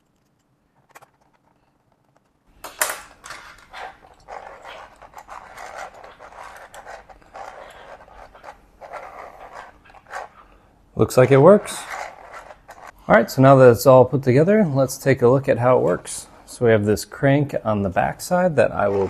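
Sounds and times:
plastic gears clattering and scraping: 0:00.0 - 0:10.4, 0:11.2 - 0:13.0.

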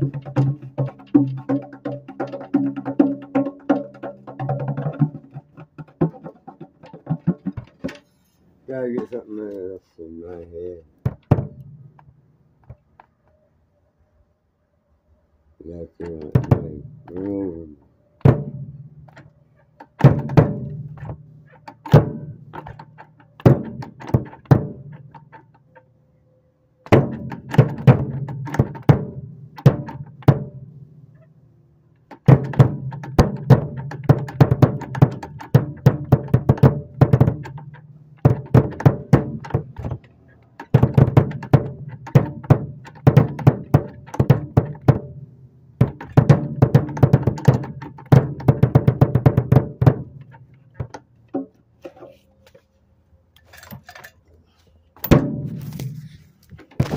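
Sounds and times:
drum kit with snare playing: 0:00.0 - 0:08.1, 0:16.1 - 0:17.3, 0:18.2 - 0:19.2, 0:19.9 - 0:25.4, 0:26.9 - 0:30.7, 0:32.1 - 0:45.2, 0:45.8 - 0:52.0, 0:55.0 - 0:56.9.

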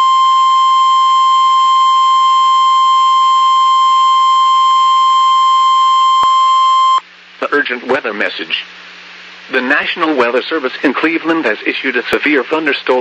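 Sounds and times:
high-pitched warning alarm tone: 0:00.0 - 0:07.0.

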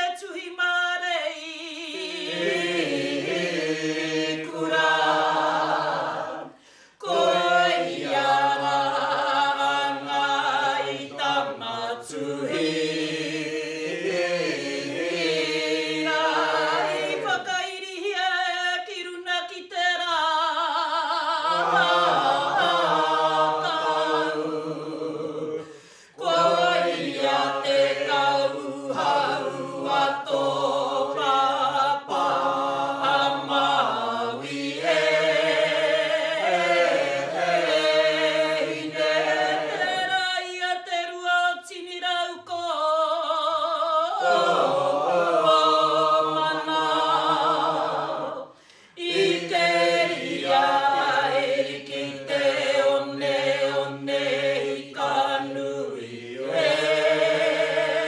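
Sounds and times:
group of voices chanting: 0:21.5 - 0:40.1, 0:44.2 - 0:58.0.

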